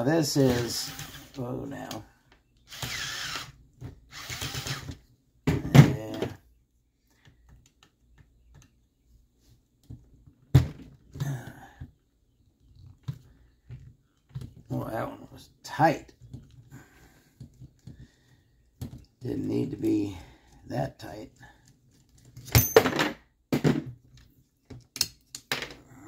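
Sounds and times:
power screwdriver whirring: 0.5s - 1.4s, 2.7s - 5.0s
small clicks and parts handling: 24.0s - 25.9s.

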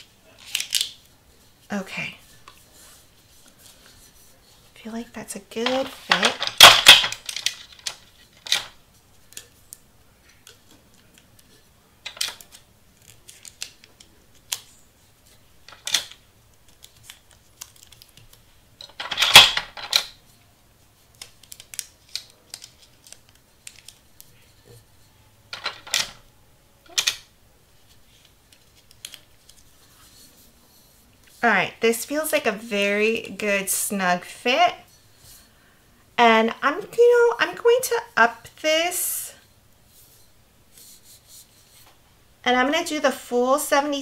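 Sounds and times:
paper rustling: 10.2s - 19.5s, 20.9s - 24.6s.

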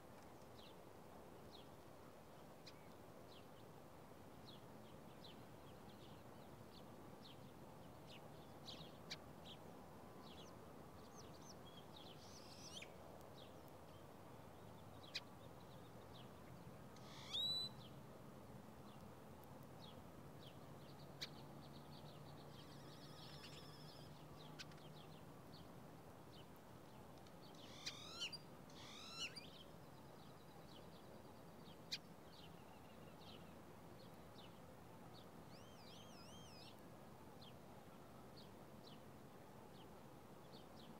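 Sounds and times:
songbirds chirping: 0.0s - 40.9s.

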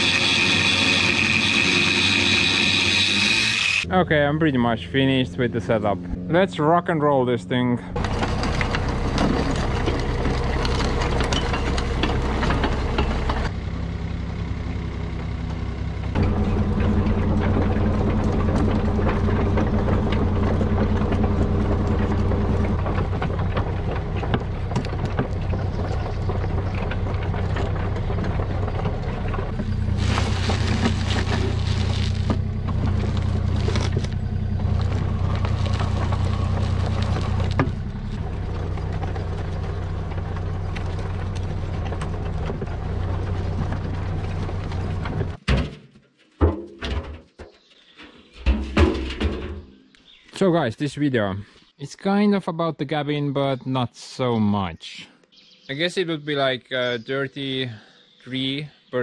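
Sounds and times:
rattling noise: 0.0s - 3.9s, 8.0s - 13.5s, 16.1s - 45.7s, 46.4s - 49.9s
excavator diesel engine running: 0.0s - 6.8s, 7.8s - 45.4s.

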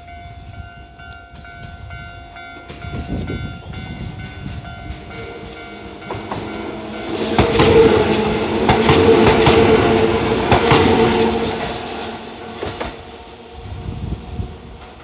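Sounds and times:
train running hum: 0.0s - 15.0s
train wheels clacking over rail joints: 1.3s - 13.3s.

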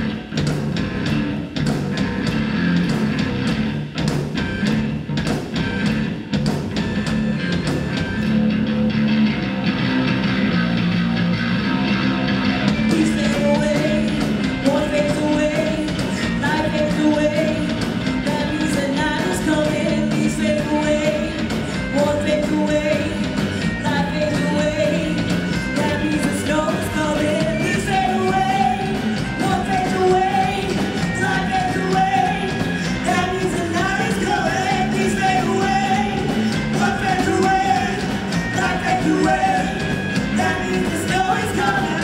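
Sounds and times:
live rock band playing: 0.0s - 42.0s
woman singing: 12.9s - 42.0s.

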